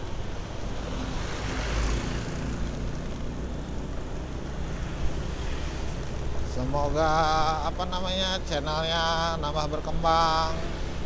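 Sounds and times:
background traffic: 0.0s - 11.0s
motor scooter running: 1.6s - 5.0s.

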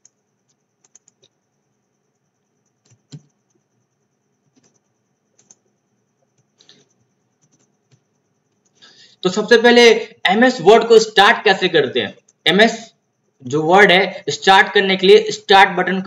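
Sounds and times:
faint high whine: 0.0s - 16.0s
mouse and keyboard clicks: 2.7s - 3.6s.

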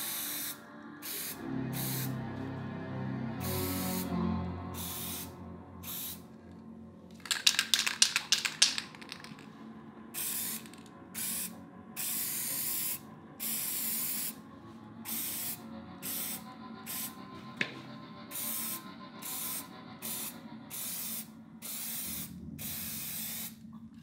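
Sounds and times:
spray can hissing: 0.0s - 2.2s, 3.4s - 4.2s, 4.8s - 6.2s, 7.2s - 9.5s, 10.2s - 14.4s, 15.1s - 17.1s, 20.2s - 23.6s
spray can rattling: 7.1s - 9.5s, 10.2s - 11.3s.

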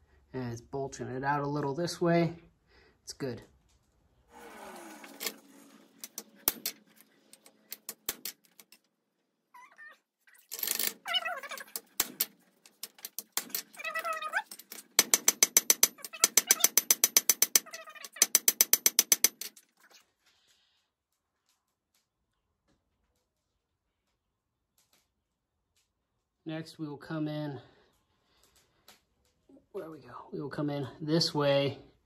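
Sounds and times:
cat meowing: 9.6s - 10.0s.

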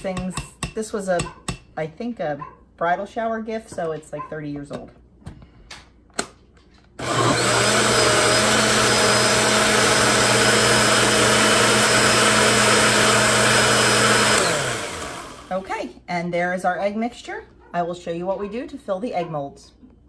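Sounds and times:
blender motor running: 7.0s - 15.6s.

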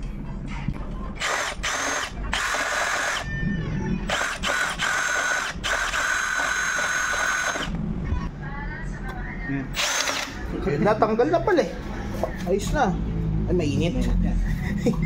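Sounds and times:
power drill whining: 1.2s - 3.3s, 4.1s - 7.7s, 9.8s - 10.3s.

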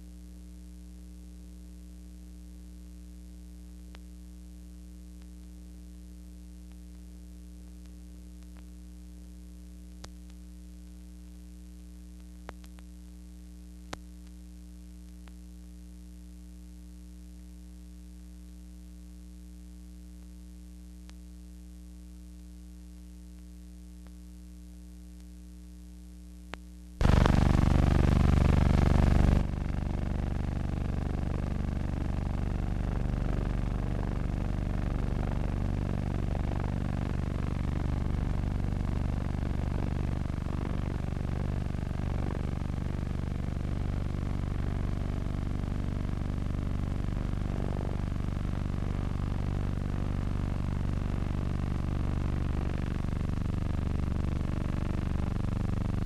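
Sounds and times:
aircraft engine running: 27.0s - 34.2s.

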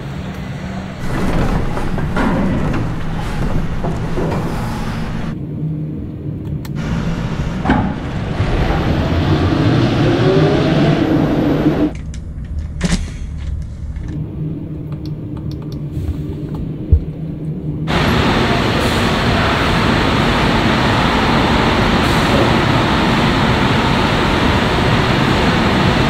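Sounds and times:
tyres rumbling on rollers: 0.0s - 5.4s, 15.5s - 26.0s
rising motor whine: 6.8s - 11.9s.

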